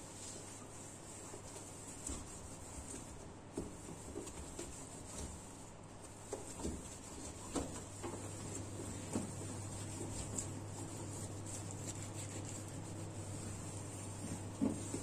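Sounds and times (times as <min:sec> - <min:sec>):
steady low hum: 0:00.0 - 0:15.0
towel rubbing on metal: 0:00.0 - 0:15.0.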